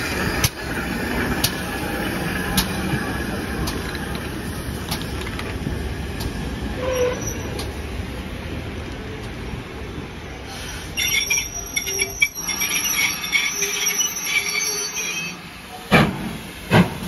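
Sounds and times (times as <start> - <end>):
train rumbling past: 0.0 - 17.0
wheels squealing on rails: 6.6 - 7.9, 10.4 - 15.9.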